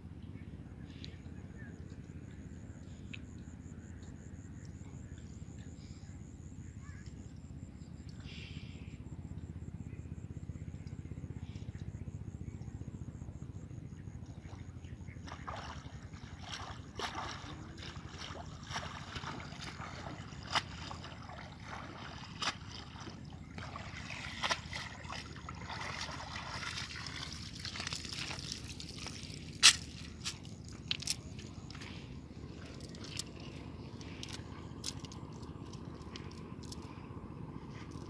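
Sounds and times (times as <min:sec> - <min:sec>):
low steady rumble: 0:00.0 - 0:38.0
water splashing and dripping: 0:15.2 - 0:31.9, 0:32.6 - 0:36.8.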